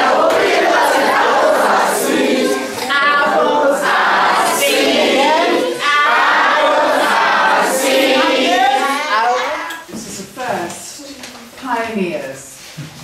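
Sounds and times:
children singing in chorus: 0:00.0 - 0:09.4.

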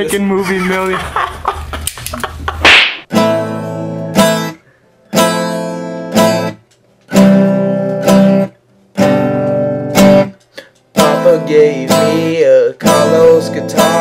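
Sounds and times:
acoustic guitar strumming: 0:03.0 - 0:14.0.

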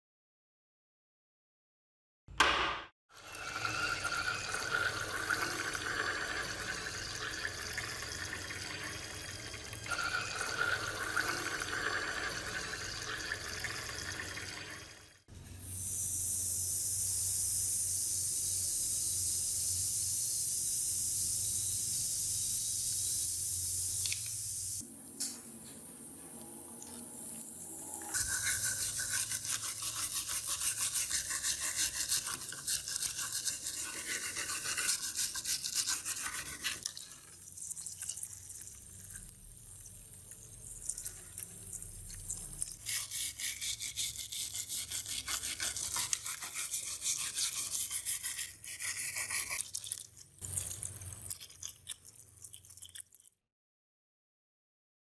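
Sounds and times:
stiff brush scrubbing metal: 0:28.0 - 0:36.9, 0:42.7 - 0:50.0.

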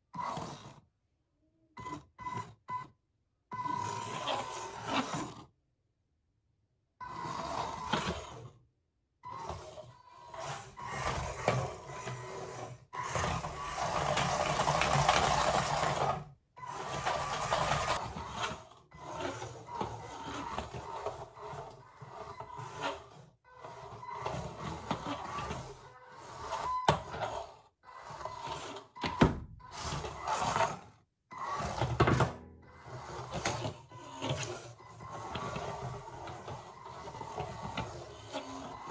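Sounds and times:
robot drive motors whirring: 0:09.3 - 0:16.0.

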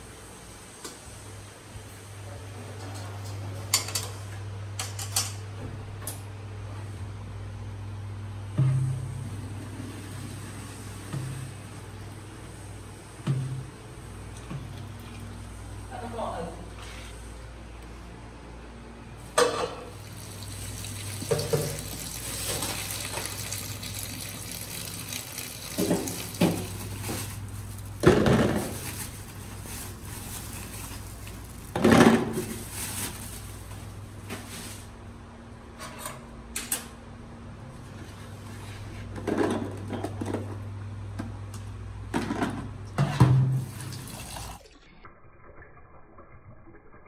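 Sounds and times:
water splashing in a metal sink: 0:20.0 - 0:28.8, 0:43.5 - 0:47.0
pot knocking against sink: 0:21.2 - 0:22.0.

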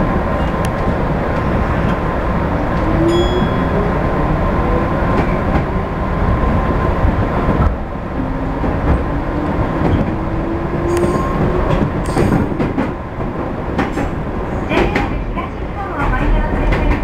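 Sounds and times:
train wheels rumbling on rail: 0:00.0 - 0:17.0
wheels clacking over rail joints: 0:07.5 - 0:17.0.

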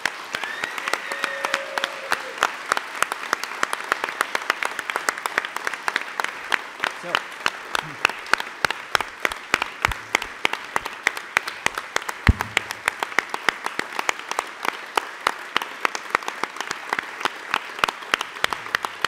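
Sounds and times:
audience applauding: 0:00.0 - 0:19.0
low thump: 0:09.9 - 0:10.4, 0:12.3 - 0:13.1.

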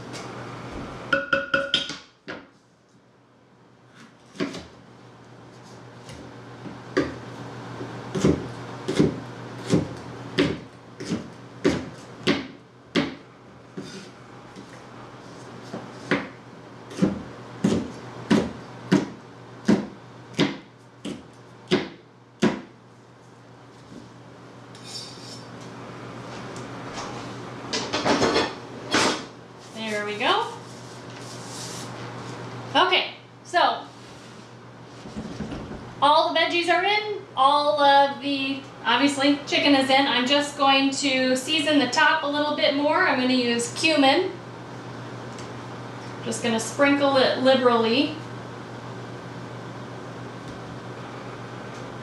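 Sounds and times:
knife chopping on cutting board: 0:08.1 - 0:13.2, 0:15.7 - 0:22.7.

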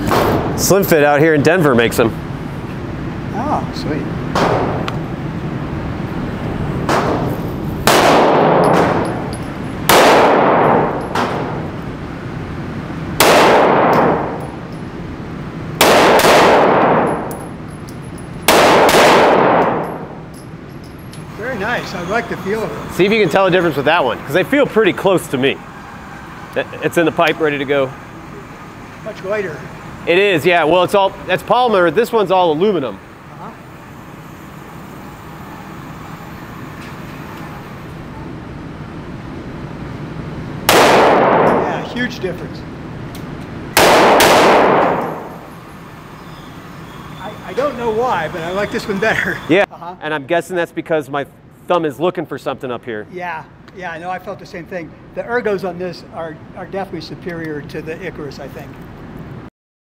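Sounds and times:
ventilation rumble: 0:00.0 - 0:46.2
pistol shots echoing indoors: 0:06.9 - 0:09.2, 0:09.8 - 0:11.7, 0:13.2 - 0:14.6, 0:15.8 - 0:17.5, 0:18.4 - 0:20.2, 0:40.6 - 0:41.8, 0:43.7 - 0:45.5.

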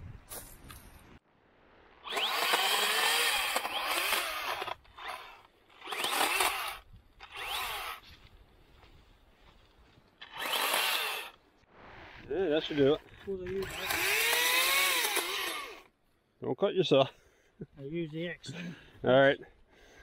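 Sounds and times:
electric chainsaw cutting wood: 0:02.0 - 0:08.0, 0:10.2 - 0:11.4, 0:13.5 - 0:15.9.

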